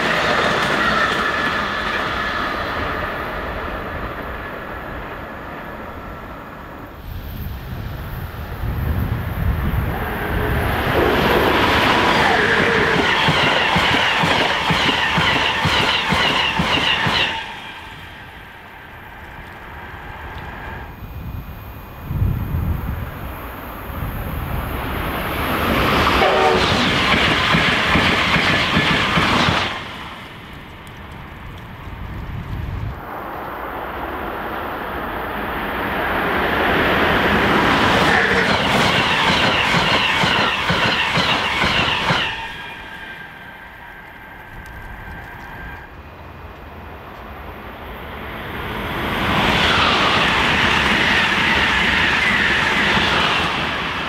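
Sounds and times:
train wheels clattering on rails: 0:00.0 - 0:03.0, 0:10.0 - 0:19.6, 0:25.6 - 0:31.9, 0:36.9 - 0:45.9.

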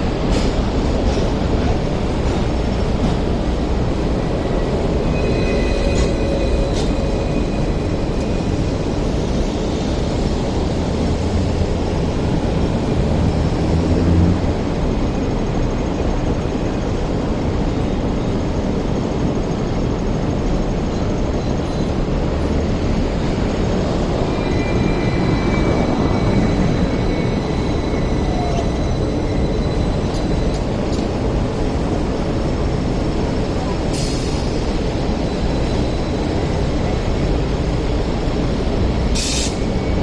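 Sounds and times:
tram wheels rumbling on rails: 0:00.0 - 0:40.0
thin high squeal: 0:05.0 - 0:07.8.

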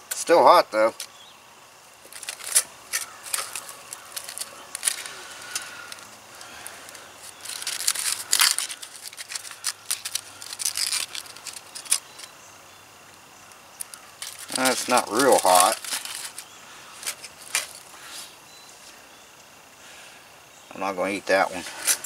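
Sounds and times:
aluminum foil crinkling: 0:02.0 - 0:12.4, 0:13.5 - 0:18.2.

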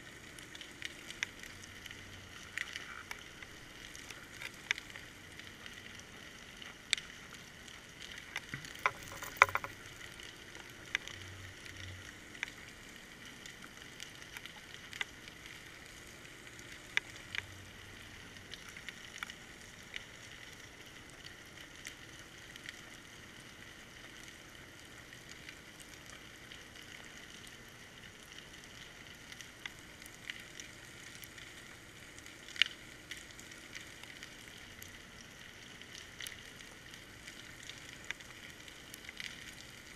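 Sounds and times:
muffled underwater hiss: 0:00.0 - 0:39.9
sharp clicks and knocks: 0:08.4 - 0:09.8.

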